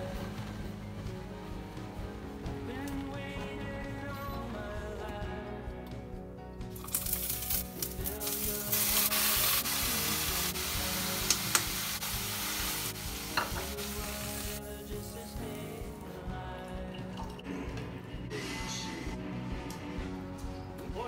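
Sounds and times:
greens sizzling in hot oil: 6.8 - 15.0.

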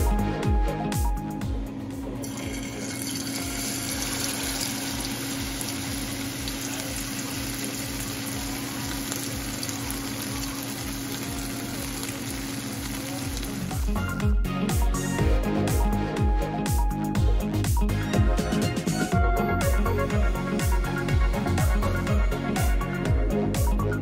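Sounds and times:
fish sizzling in hot oil: 2.2 - 14.0.

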